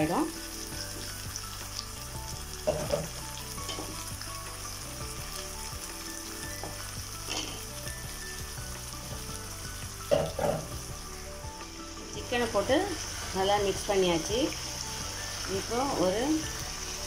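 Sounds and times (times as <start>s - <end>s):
chicken sizzling in oil: 0.0s - 17.0s.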